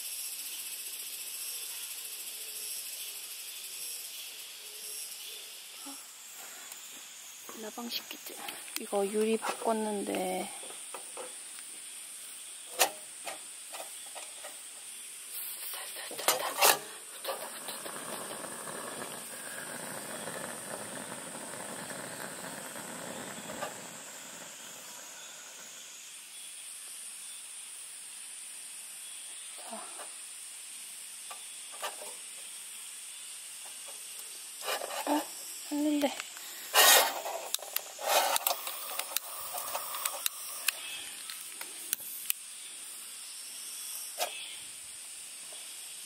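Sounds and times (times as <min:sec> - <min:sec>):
hiss of burning gas: 0:00.0 - 0:46.0
gas lantern ignition clicks: 0:37.5 - 0:42.4.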